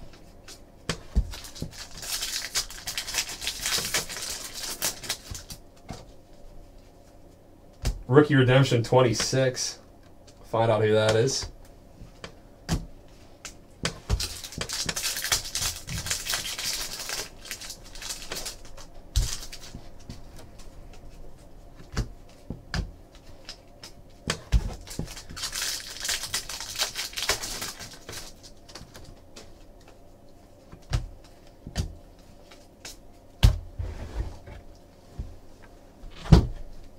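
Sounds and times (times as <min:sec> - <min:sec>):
cards rustling and clicking: 0:14.2 - 0:20.7.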